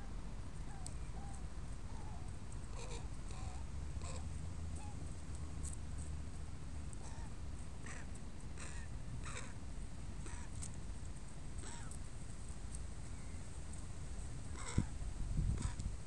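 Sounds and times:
low steady rumble: 0.0s - 16.0s
crows cawing: 7.0s - 9.6s, 10.2s - 10.5s, 11.6s - 11.9s, 14.5s - 14.9s.

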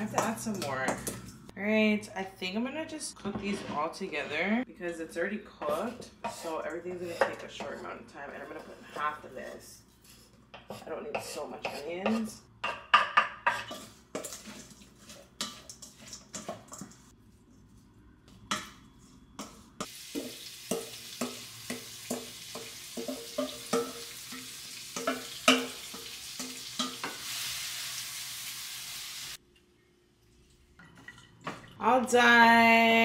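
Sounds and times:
wooden spoon scraping a pan: 3.2s - 4.5s, 5.6s - 27.6s
food sizzling in a pan: 19.4s - 29.4s.

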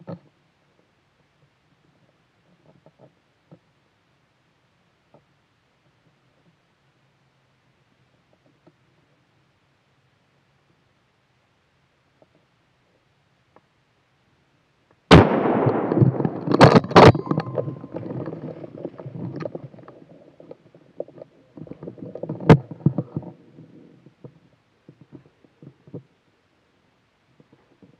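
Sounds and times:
gunshot echoing through woods: 15.1s - 18.0s
sharp clicks or knocks: 15.2s - 18.5s.

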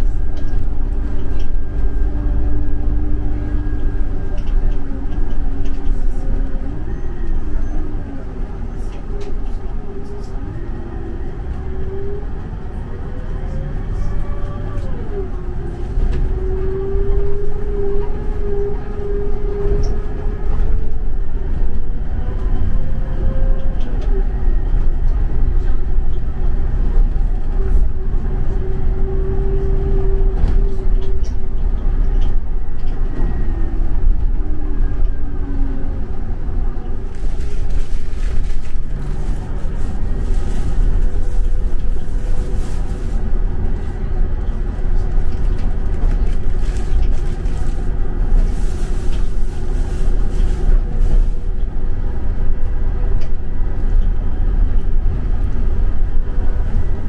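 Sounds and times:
diesel engine inside coach: 0.0s - 57.0s
engine whine: 0.0s - 57.0s
road rumble with tyre hiss: 35.2s - 57.0s.

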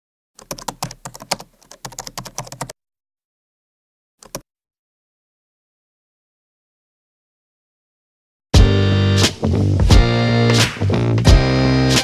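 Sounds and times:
keyboard typing: 0.4s - 2.8s, 4.2s - 4.5s.

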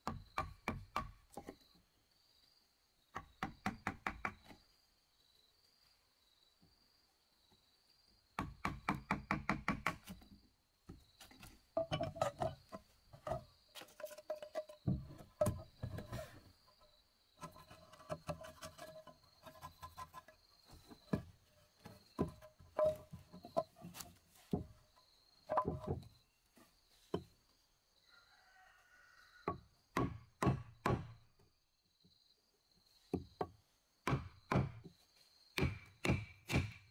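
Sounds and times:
wooden mallet striking a chisel: 29.5s - 31.2s, 35.6s - 36.8s.

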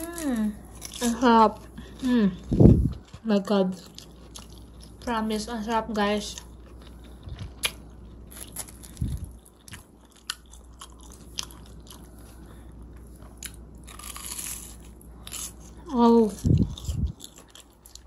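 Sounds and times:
crunching and chewing food: 0.0s - 18.0s.

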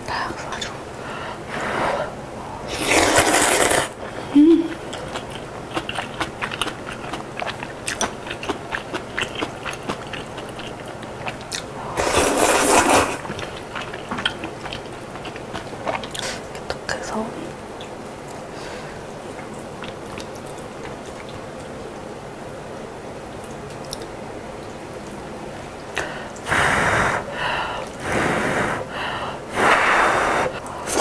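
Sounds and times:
noodle slurping: 2.7s - 4.0s, 4.7s - 16.5s, 26.4s - 31.0s
crunchy chewing: 4.7s - 16.8s, 19.2s - 21.7s.

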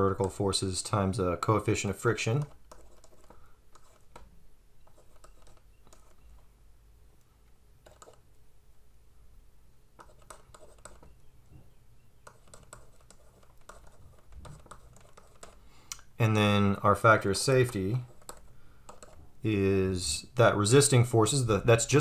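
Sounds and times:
stylus tapping on pen tablet: 7.8s - 8.2s, 10.0s - 11.2s, 12.2s - 15.6s, 18.2s - 19.2s.

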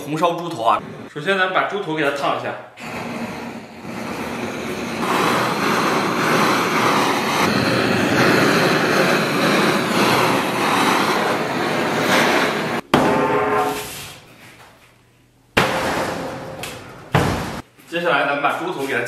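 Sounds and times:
blowtorch flame rushing: 2.8s - 12.8s.

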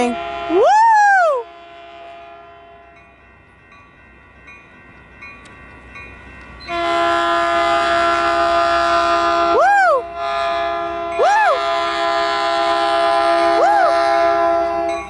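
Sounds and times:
train horn blast: 0.0s - 0.6s, 1.4s - 3.0s, 6.7s - 15.0s
train approaching: 0.0s - 15.0s.

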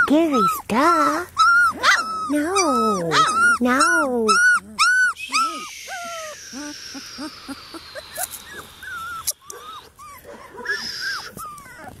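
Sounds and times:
puppy whimpering: 0.0s - 12.0s.

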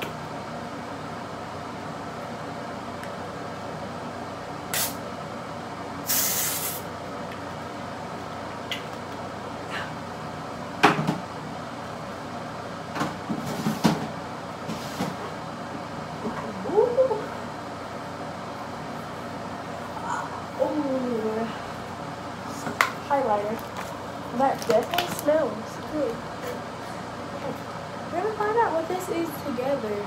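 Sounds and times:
background hum: 0.0s - 30.0s
brief hiss: 6.1s - 6.8s.

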